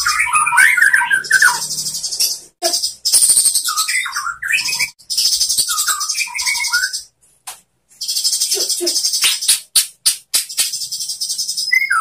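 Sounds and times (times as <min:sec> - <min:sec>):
bird singing whistled notes: 0:00.0 - 0:07.1, 0:10.4 - 0:12.0.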